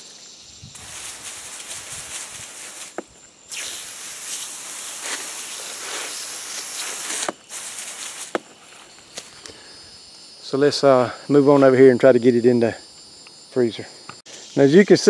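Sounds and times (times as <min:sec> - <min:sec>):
hose nozzle spraying water: 0:00.8 - 0:08.5.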